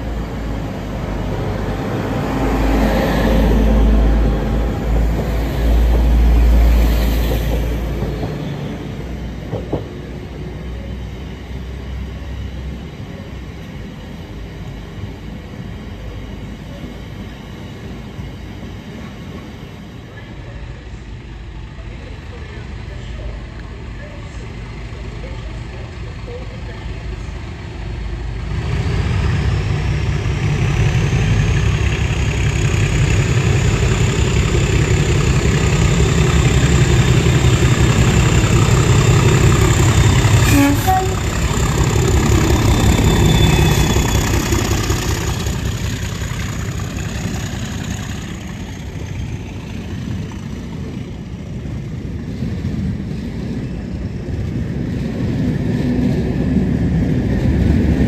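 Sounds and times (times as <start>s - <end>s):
diesel locomotive engine rumble: 0.0s - 58.0s
train cars rolling past: 0.0s - 58.0s
turbocharger whistle: 42.7s - 44.4s.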